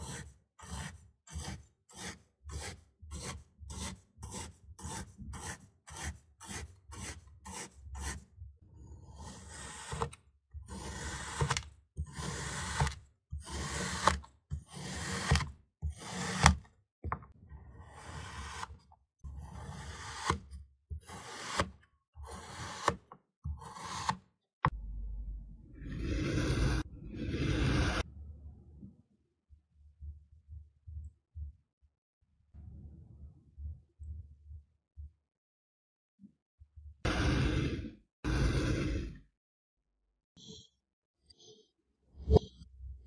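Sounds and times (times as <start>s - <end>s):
metal tool scraping sand: 37.1s - 39.2s.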